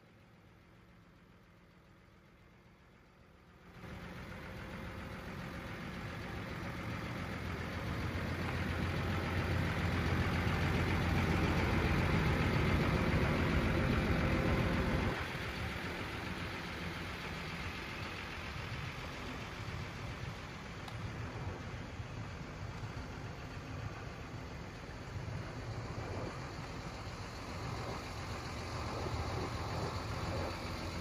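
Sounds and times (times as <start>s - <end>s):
diesel truck engine idling: 0.0s - 31.0s.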